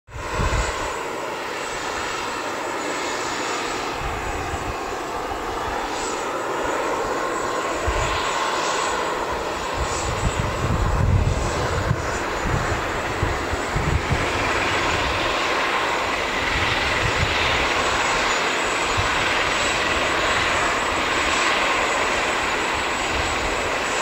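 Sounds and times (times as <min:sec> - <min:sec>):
turboprop engine hum and whine: 0:00.1 - 0:24.0.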